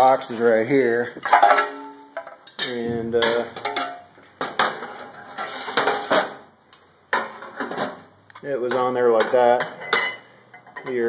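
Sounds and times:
sheet metal clanking: 1.2 - 6.4.

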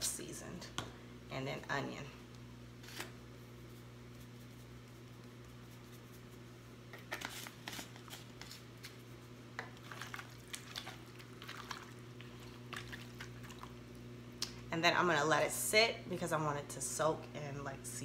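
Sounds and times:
steady low hum: 0.0 - 18.0
wet squishing of chicken: 9.8 - 13.9.

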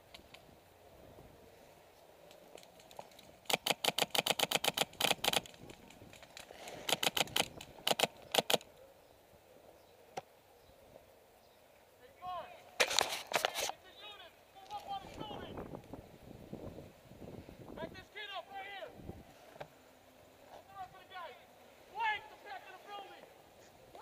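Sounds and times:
airsoft gunfire bursts: 3.4 - 5.5, 6.8 - 8.6.

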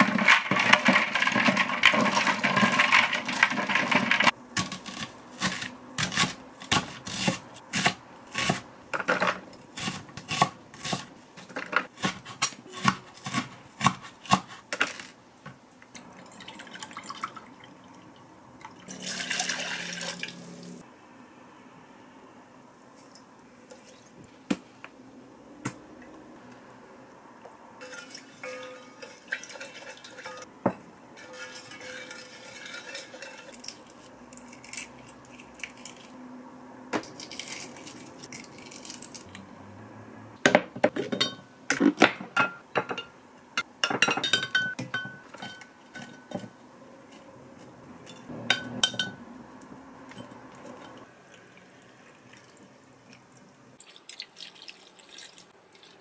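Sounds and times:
dishes and utensils clinking: 27.8 - 33.8, 40.9 - 43.2, 43.8 - 46.5, 48.0 - 49.2.

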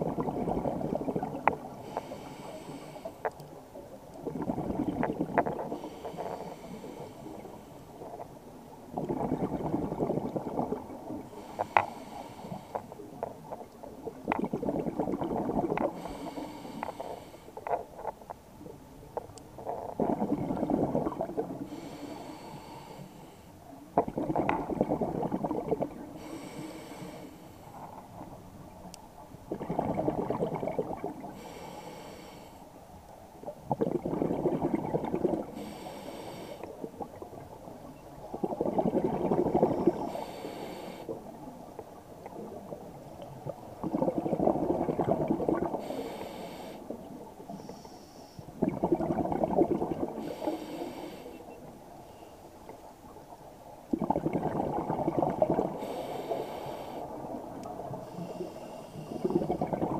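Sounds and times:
exhaled bubbles rumbling underwater: 0.0 - 31.8, 32.8 - 47.6, 48.5 - 59.9
regulator hiss: 40.0 - 41.1, 55.8 - 57.1.

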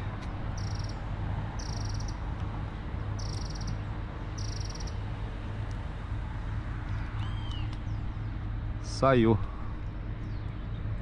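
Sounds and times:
outdoor background rush: 0.0 - 11.0
insect trilling: 0.6 - 0.9, 1.6 - 2.2, 3.2 - 3.8, 4.4 - 4.9.

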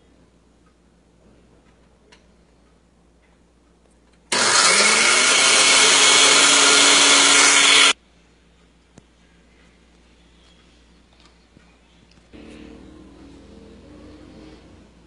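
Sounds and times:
blender motor running: 4.3 - 8.0.

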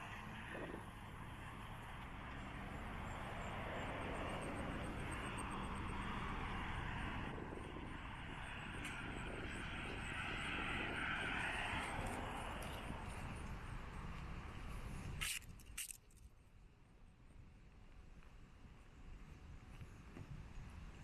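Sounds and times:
cars driving past: 0.0 - 15.2.

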